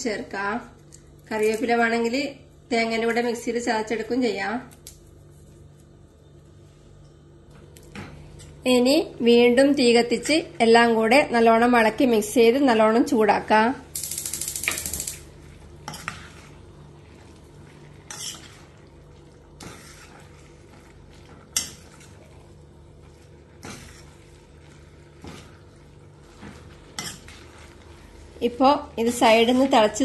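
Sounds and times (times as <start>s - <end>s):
spoon scraping metal pan: 18.0s - 18.6s.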